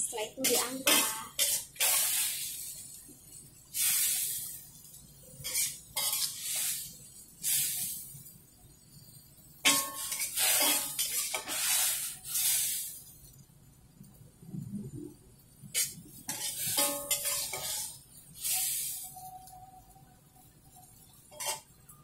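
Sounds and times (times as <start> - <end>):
metal spatula scraping wok: 0.3 - 3.0, 3.7 - 8.1, 9.6 - 13.1, 15.6 - 19.6, 20.4 - 22.0.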